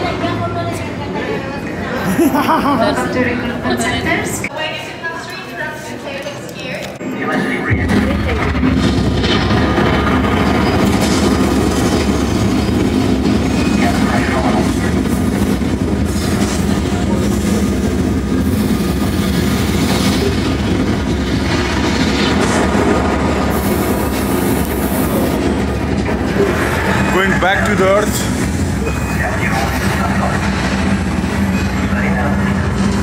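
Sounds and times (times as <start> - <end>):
loud rumbling from speakers: 7.0 - 33.0.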